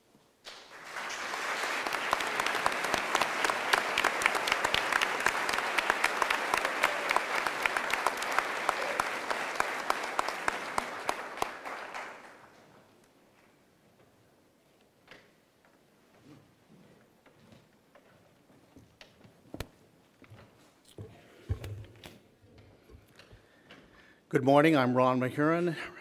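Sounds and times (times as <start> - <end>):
audience applauding: 0.5 - 12.8.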